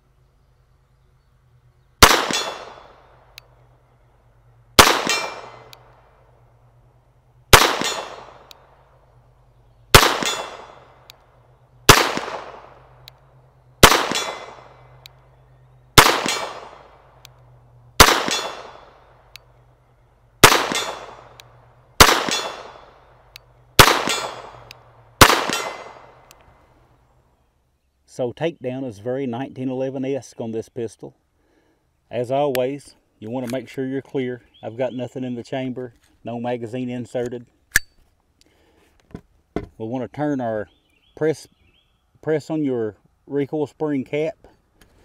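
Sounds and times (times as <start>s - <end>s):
pistol shots: 2.0s - 3.4s, 4.8s - 6.0s, 7.5s - 8.7s, 9.9s - 11.1s, 11.9s - 13.0s, 13.8s - 15.0s, 16.0s - 17.3s, 18.0s - 19.1s, 20.4s - 23.1s, 23.8s - 26.3s.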